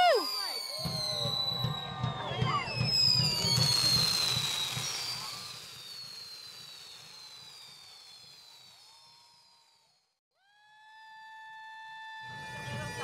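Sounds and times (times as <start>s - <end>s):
fireworks fountains hissing: 0.0s - 10.0s
high whistling falling in pitch: 0.0s - 10.0s.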